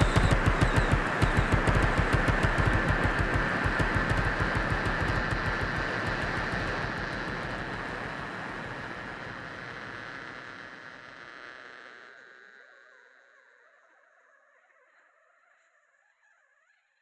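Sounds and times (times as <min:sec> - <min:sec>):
electronic music low pulse: 0:00.0 - 0:10.4.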